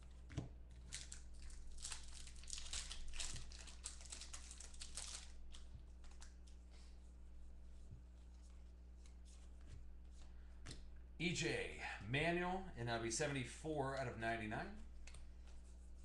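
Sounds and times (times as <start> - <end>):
foil wrapper crinkling and tearing: 0.8 - 6.4.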